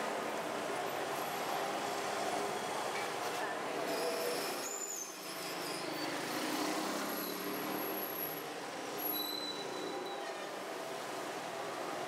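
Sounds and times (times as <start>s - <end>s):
faint high squeaks: 9.0s - 10.5s.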